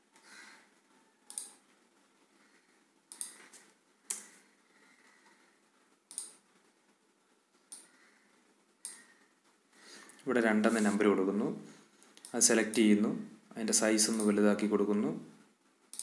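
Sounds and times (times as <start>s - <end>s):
low room hiss: 0.0s - 16.0s
mouse and keyboard clicks: 1.3s - 1.6s, 3.1s - 4.3s, 6.1s - 6.4s.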